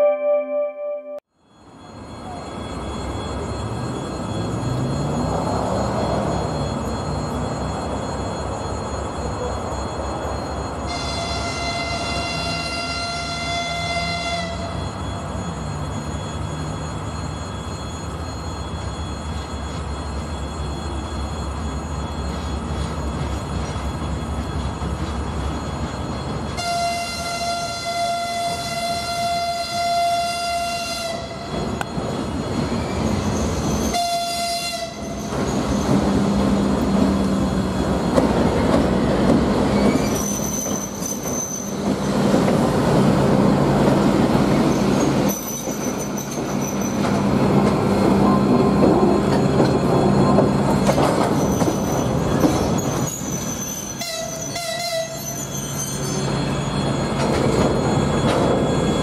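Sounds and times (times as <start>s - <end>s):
locomotive horn: 10.9s - 14.8s, 26.6s - 31.5s, 33.8s - 35.2s, 54.0s - 55.3s
wheel squeals: 31.5s - 34.0s, 34.9s - 59.0s.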